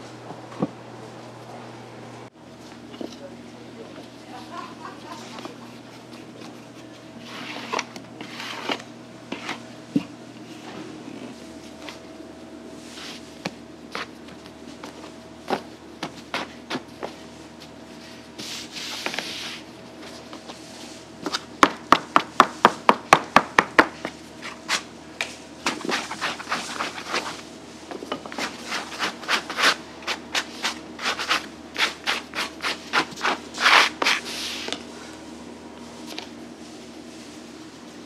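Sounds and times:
scraper on worktable: 0:07.2 - 0:09.6, 0:18.4 - 0:19.7, 0:25.7 - 0:27.4, 0:28.3 - 0:34.8
hands rubbing dough: 0:25.7 - 0:27.5.

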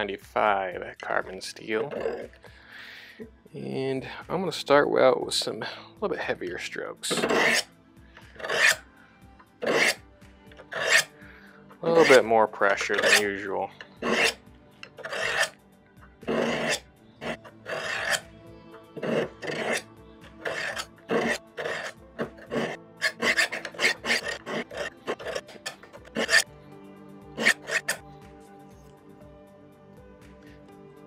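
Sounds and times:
faint background music: 0:00.0 - 0:31.0
knife scraping on sharpening rods: 0:01.8 - 0:02.4, 0:07.1 - 0:08.8, 0:09.6 - 0:10.0, 0:10.6 - 0:11.1, 0:11.8 - 0:15.6, 0:16.2 - 0:18.3, 0:19.0 - 0:26.5, 0:27.4 - 0:28.0.

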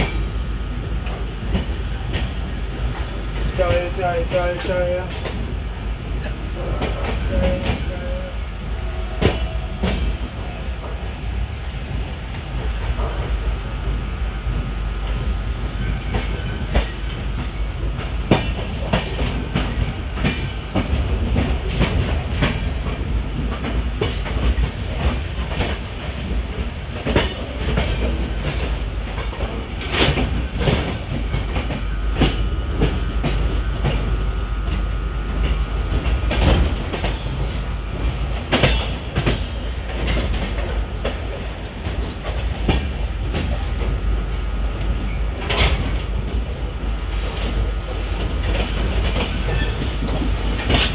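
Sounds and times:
train rumbling: 0:00.0 - 0:50.9
rushing air: 0:31.0 - 0:39.9.

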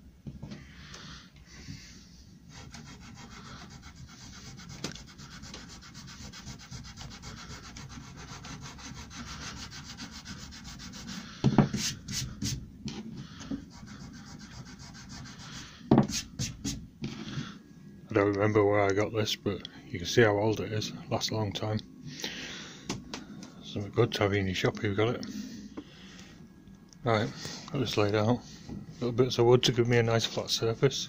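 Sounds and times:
eraser rubbing on wood: 0:02.5 - 0:12.6, 0:13.7 - 0:16.8.

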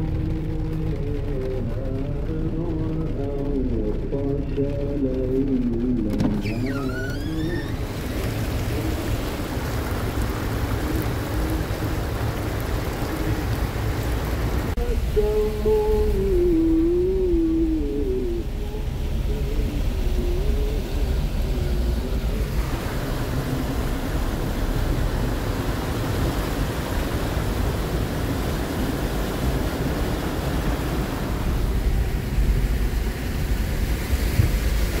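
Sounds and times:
car engine and road rumble: 0:00.0 - 0:35.0
floodwater splashing against car: 0:00.0 - 0:35.0.

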